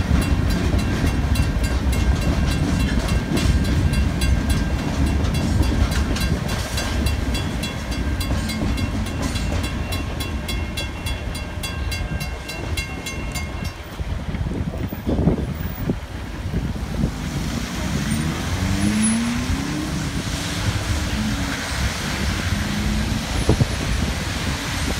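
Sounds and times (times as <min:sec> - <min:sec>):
level crossing warning bell: 0:00.0 - 0:14.1
freight train rumble: 0:00.0 - 0:24.9
tyres hissing on wet road: 0:14.9 - 0:24.9
car engines pulling away: 0:16.6 - 0:24.9.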